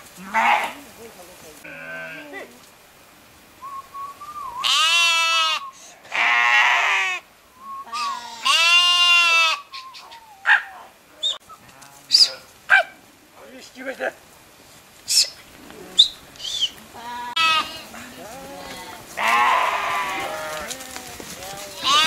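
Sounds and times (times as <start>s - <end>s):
sheep bleating: 0.2s - 0.8s, 1.6s - 2.5s, 4.6s - 7.2s, 8.0s - 9.7s, 17.0s - 22.0s.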